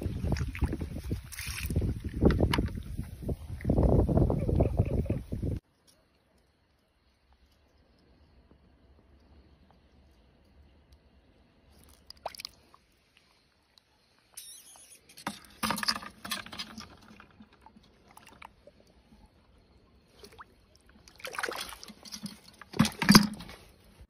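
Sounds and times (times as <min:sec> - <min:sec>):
muddy water splashing: 0:00.0 - 0:05.6, 0:11.7 - 0:13.3, 0:16.0 - 0:23.8.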